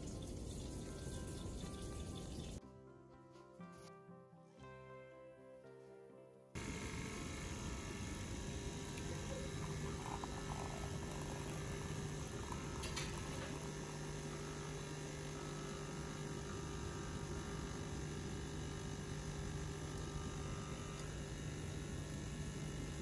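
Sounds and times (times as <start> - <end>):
espresso machine pump humming: 0.0 - 2.6, 6.6 - 23.0
espresso pouring into cup: 6.6 - 23.0.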